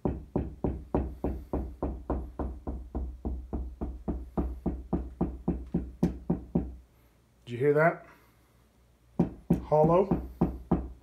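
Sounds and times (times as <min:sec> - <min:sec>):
knuckles knocking on drywall: 0:00.0 - 0:06.8, 0:09.2 - 0:11.0.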